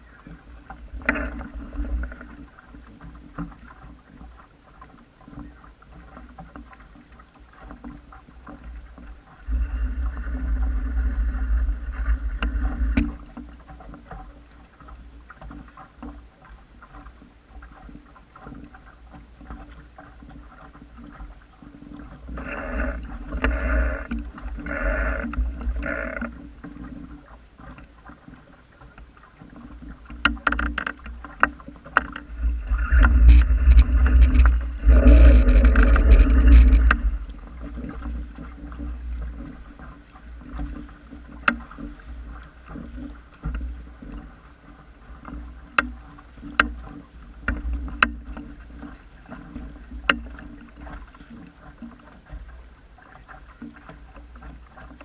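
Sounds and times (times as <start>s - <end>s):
water lapping against a hull: 0.0s - 55.0s
water slaps on hull: 0.0s - 55.0s
wind buffeting microphone: 32.2s - 38.4s.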